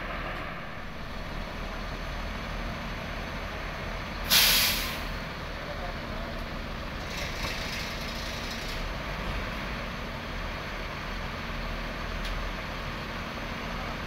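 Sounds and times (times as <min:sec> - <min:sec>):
diesel bus engine idling: 0:00.0 - 0:14.0
short air hiss: 0:04.2 - 0:05.1.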